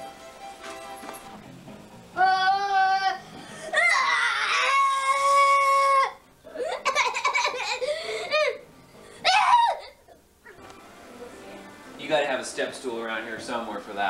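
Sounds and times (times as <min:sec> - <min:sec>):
boy warbling vocal sounds: 0:02.2 - 0:03.2
boy laughing and squealing: 0:02.2 - 0:08.6, 0:09.2 - 0:10.6.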